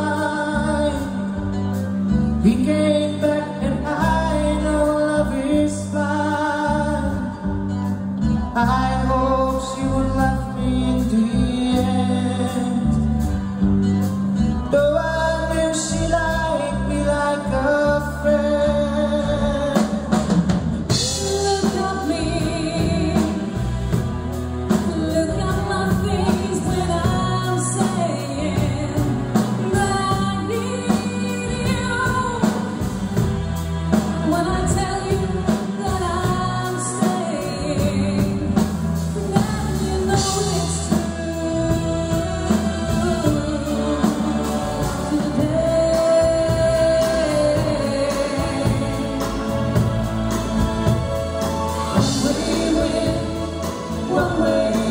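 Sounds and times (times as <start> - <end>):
live band playing pop song: 0.0 - 54.9
person singing: 14.5 - 54.9
drum kit beat: 18.2 - 54.9.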